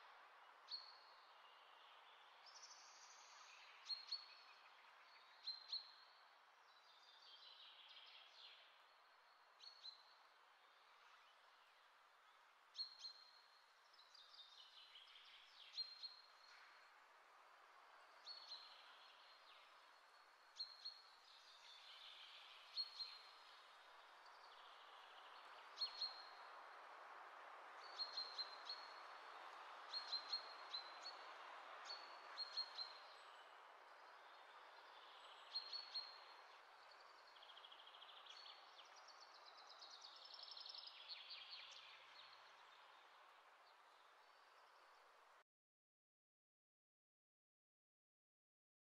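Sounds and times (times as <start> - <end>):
faint steady hiss: 0.0 - 45.4
small birds chirping: 27.8 - 45.0.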